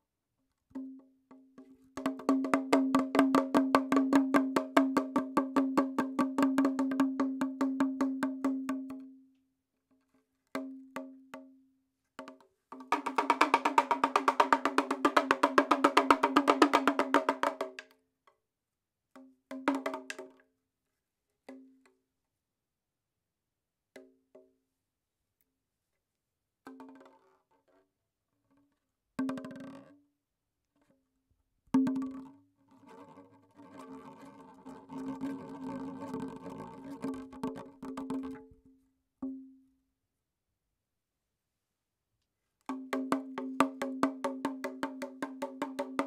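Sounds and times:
wood-block-like percussion: 0.7s - 9.2s, 12.2s - 18.0s, 19.2s - 20.4s, 29.2s - 29.9s, 31.7s - 39.6s, 42.6s - 46.0s.

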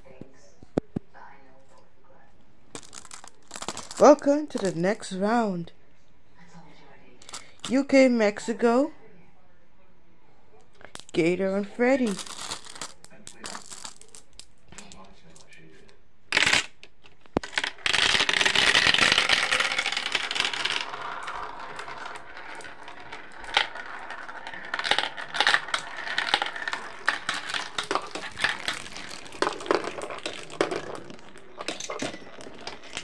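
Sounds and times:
marbles rattling through plastic tube: 2.8s - 5.1s, 10.9s - 15.5s, 16.3s - 16.8s, 17.4s - 33.0s
marbles clicking on track: 17.4s - 33.0s.

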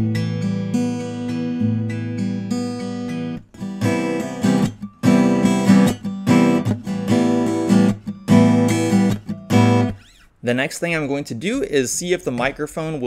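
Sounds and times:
acoustic guitar strumming chords: 0.0s - 10.2s.

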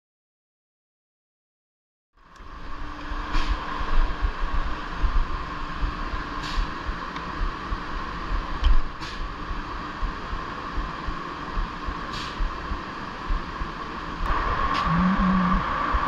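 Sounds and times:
woodworking machinery drone: 9.3s - 16.0s
low rumble: 10.0s - 16.0s.

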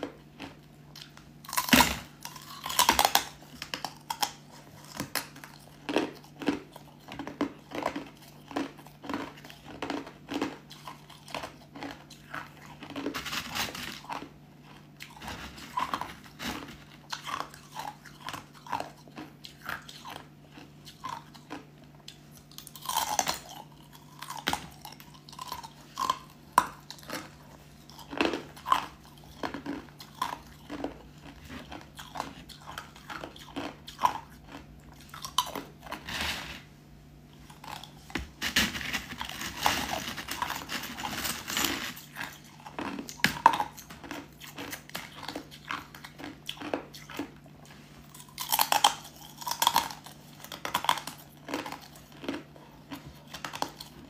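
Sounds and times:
ice being chewed: 0.0s - 36.7s, 37.3s - 54.0s.

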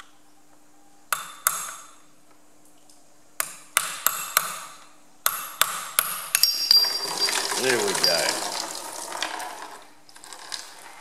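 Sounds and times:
screwdriver clinking on metal: 6.4s - 8.8s.

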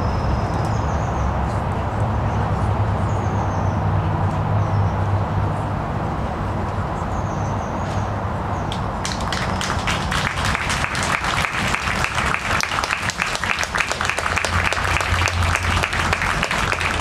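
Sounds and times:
crowd applauding: 8.7s - 17.0s.

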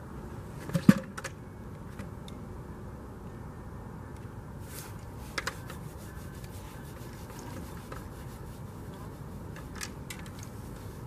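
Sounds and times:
faint clicks and rubs: 4.7s - 11.0s.

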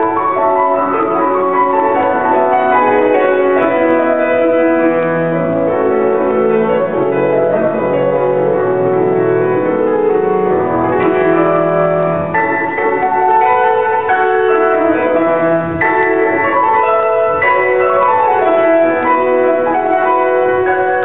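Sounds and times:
solo piano: 0.0s - 21.0s.

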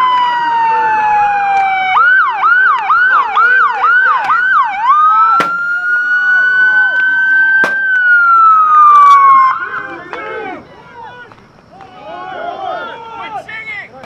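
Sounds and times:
electronic police siren: 0.0s - 10.0s
sharp crack: 5.3s - 5.8s, 7.0s - 9.4s.

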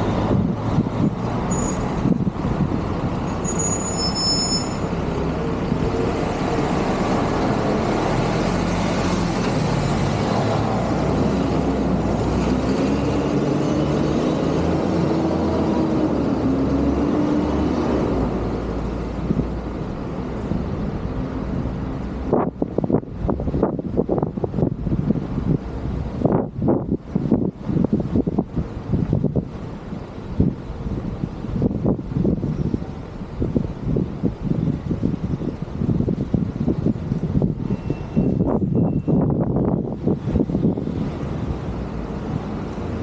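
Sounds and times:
busy road traffic rumble: 0.0s - 43.0s
high-pitched squeal: 3.2s - 5.0s.

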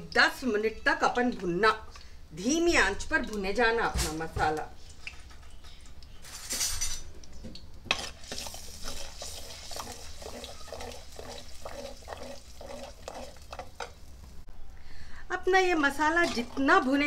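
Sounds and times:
oil sizzling: 7.2s - 14.5s
spoon scraping a pan: 7.9s - 14.0s, 16.1s - 17.0s.

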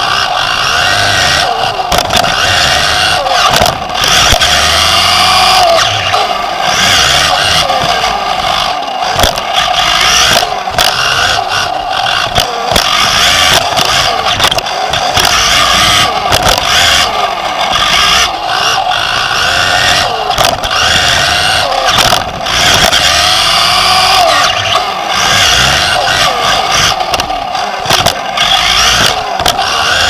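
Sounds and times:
electric motor whine: 0.0s - 30.0s
tyres rumbling on track: 0.0s - 30.0s
knocks and clatter from landings: 1.9s - 2.4s, 3.4s - 4.5s, 9.1s - 9.4s.

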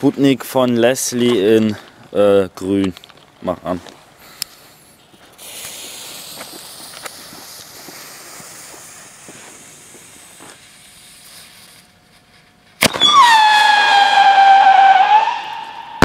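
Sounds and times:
small crackles: 0.6s - 12.9s
fuse hissing and sputtering: 5.3s - 11.9s.

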